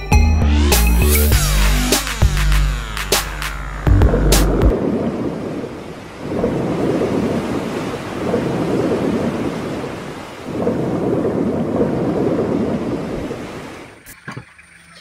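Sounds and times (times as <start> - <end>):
rushing rumbling sound effect: 1.3 - 9.4.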